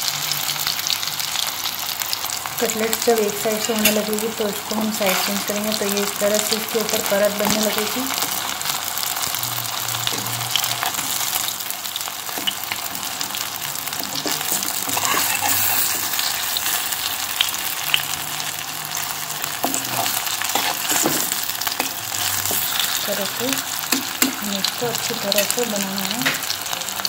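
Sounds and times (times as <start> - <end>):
frying sizzle with small pops: 0.0 - 27.0
metal spatula scraping pan: 5.0 - 5.6, 13.9 - 17.0, 19.5 - 23.4.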